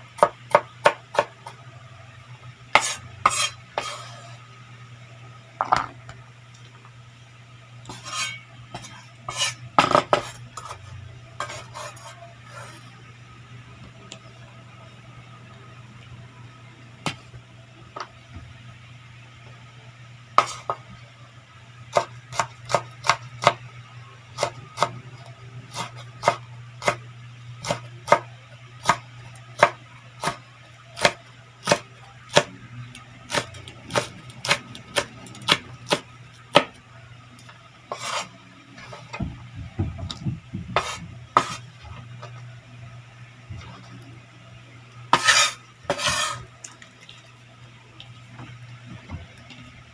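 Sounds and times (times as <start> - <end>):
steady low hum: 0.0 - 49.9
knife scraping board: 2.7 - 4.4, 7.9 - 13.0, 37.9 - 39.2, 40.8 - 41.7, 45.1 - 46.4
knife chopping on cutting board: 2.8 - 4.1, 27.6 - 29.0, 40.8 - 41.6, 45.2 - 46.4.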